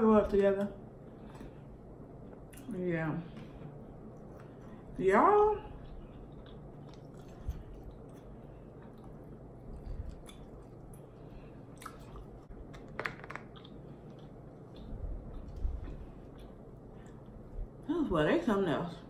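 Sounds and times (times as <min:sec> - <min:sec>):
person chewing food: 0:05.8 - 0:17.8.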